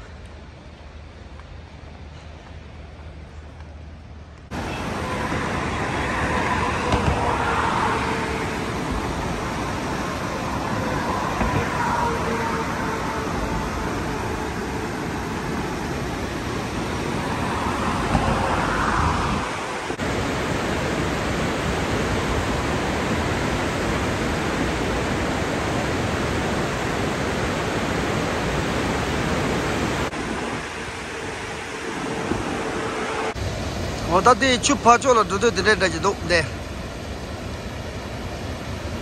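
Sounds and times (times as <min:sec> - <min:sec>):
waterfall rushing: 0:04.5 - 0:39.0.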